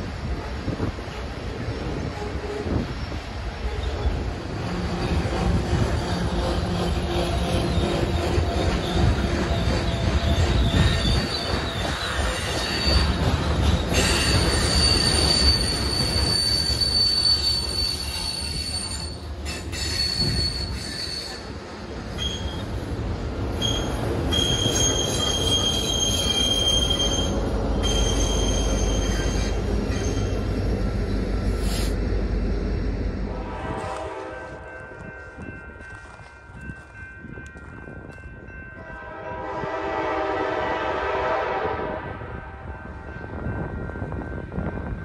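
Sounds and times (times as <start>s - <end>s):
train rumble: 0.0s - 45.0s
steel wheels squealing: 2.7s - 22.8s, 23.5s - 32.0s.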